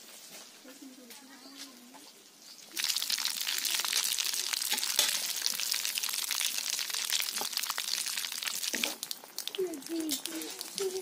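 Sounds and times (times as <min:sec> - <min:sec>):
fish sizzling in hot oil: 0:02.6 - 0:09.5.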